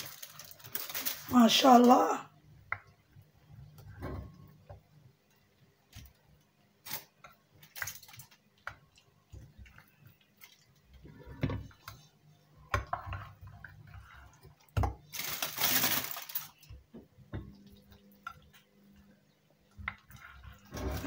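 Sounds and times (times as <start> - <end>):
aluminium foil crinkling: 0.0 - 2.1, 6.8 - 8.4, 15.1 - 16.7.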